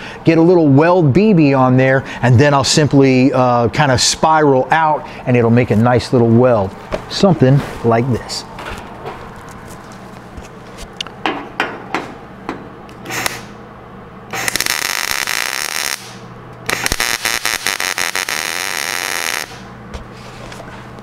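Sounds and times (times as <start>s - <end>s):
welder crackling sizzle: 14.4s - 19.7s.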